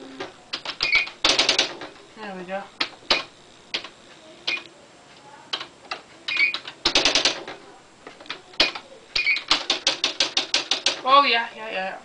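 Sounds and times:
typewriter strikes: 0.5s - 1.9s, 6.3s - 7.6s, 8.6s - 11.1s.

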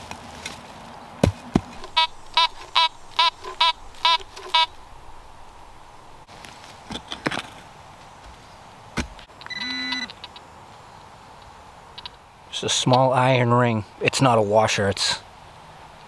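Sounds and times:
metal detector short beeps: 1.8s - 5.4s.

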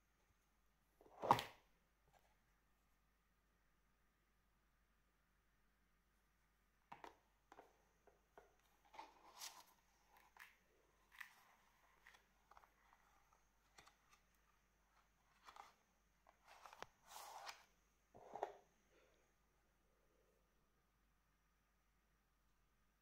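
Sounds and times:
paper and card rustling: 8.6s - 17.8s.

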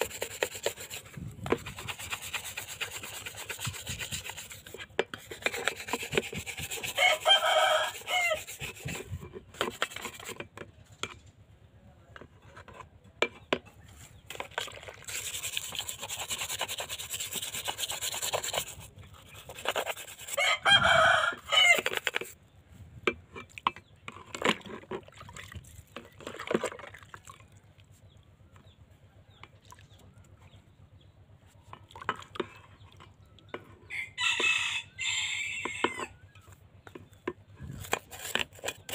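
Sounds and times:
scrub brush scouring metal: 0.0s - 10.5s, 14.3s - 22.3s, 37.8s - 38.9s
rooster crowing: 6.9s - 8.4s, 20.3s - 21.8s, 33.9s - 36.2s.

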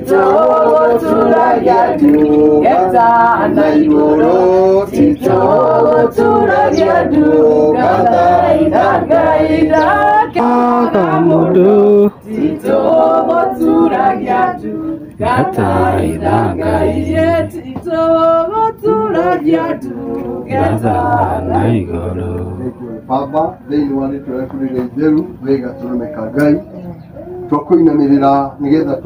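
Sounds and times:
group singing a hymn: 0.0s - 23.1s.

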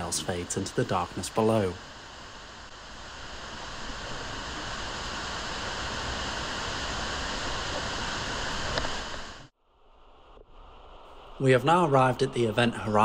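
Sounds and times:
water falling in a cave shaft: 0.0s - 9.5s.

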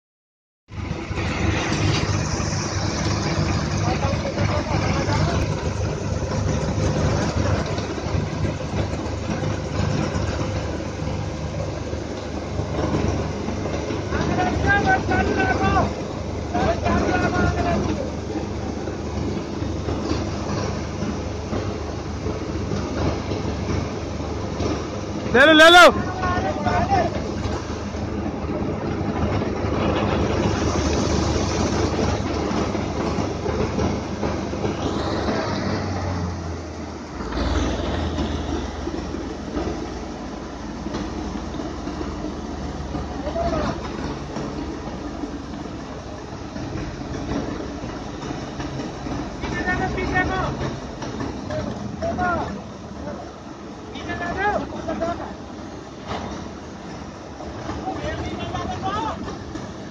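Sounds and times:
combine harvester drone: 0.7s - 59.9s
grain unloading auger: 0.8s - 56.2s
grain pouring from auger: 0.9s - 10.7s, 29.7s - 33.6s.

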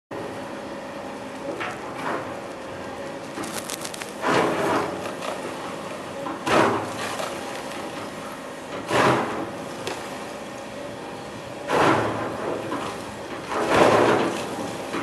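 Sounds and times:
excavator running hum: 0.1s - 15.0s
bucket scraping and crunching snow: 3.3s - 5.4s.

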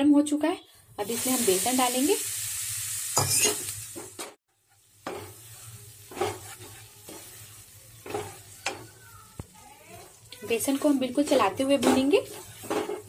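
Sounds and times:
light sizzle: 1.0s - 13.0s
wooden spatula scraping pan: 4.7s - 9.0s, 10.0s - 13.0s.

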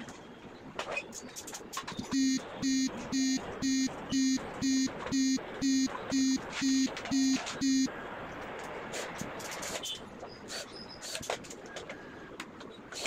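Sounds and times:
electronic buzzer beeping: 2.1s - 7.9s.

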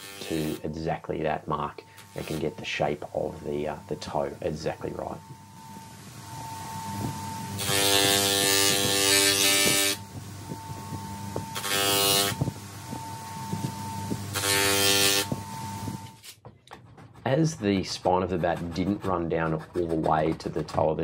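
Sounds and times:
grinder motor humming: 0.0s - 0.7s, 5.0s - 16.2s
wood rasping on sanding drum: 0.0s - 0.8s, 6.6s - 15.9s, 16.7s - 21.0s.

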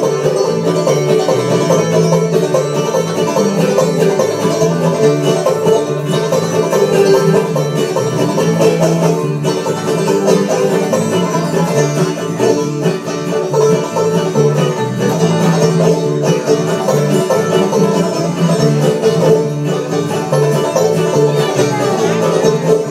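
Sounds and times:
acoustic guitar: 0.0s - 22.9s
banjo playing bluegrass: 0.0s - 22.9s
bass line: 0.0s - 22.9s.

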